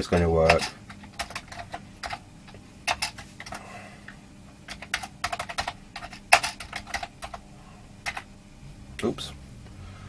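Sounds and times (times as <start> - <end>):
plastic keyboard keys clacking: 0.5 - 2.2, 4.7 - 7.4.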